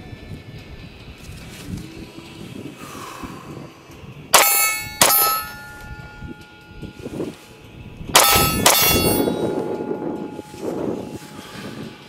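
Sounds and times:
steel target clanging: 4.3s - 7.4s, 8.1s - 11.4s
pistol shots: 8.2s - 9.3s.

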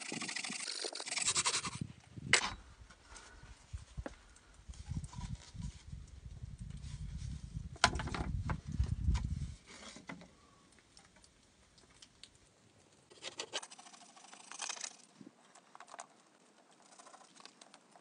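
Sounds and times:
pencil scratching on wood: 0.0s - 1.8s
wooden boards knocking together: 7.8s - 8.6s.

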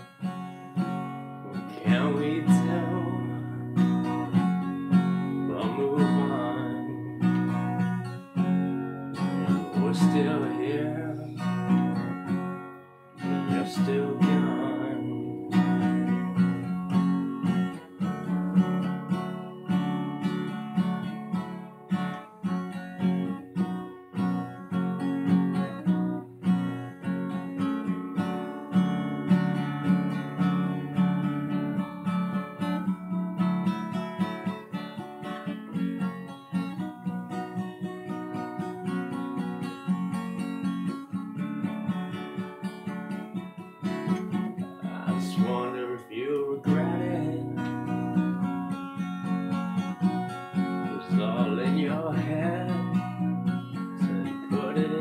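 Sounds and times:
acoustic guitar strumming: 0.0s - 55.0s.

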